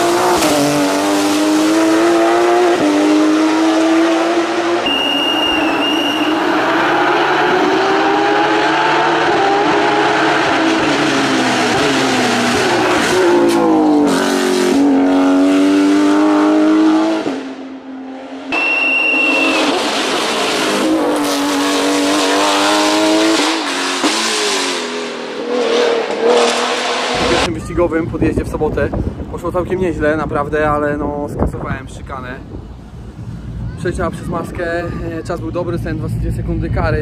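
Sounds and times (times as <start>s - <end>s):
race car engine accelerating: 0.0s - 27.5s
short high beep: 4.8s - 6.4s, 18.5s - 19.7s.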